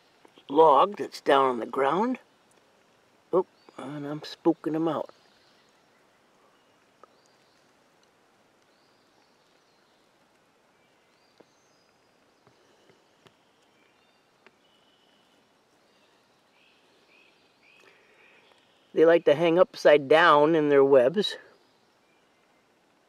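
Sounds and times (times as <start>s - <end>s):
faint bird chirps: 3.3s - 8.0s, 8.6s - 19.2s, 21.0s - 23.0s.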